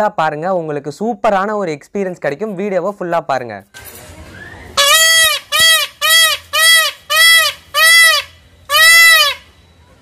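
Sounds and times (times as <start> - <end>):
peacock calling: 4.3 - 10.0.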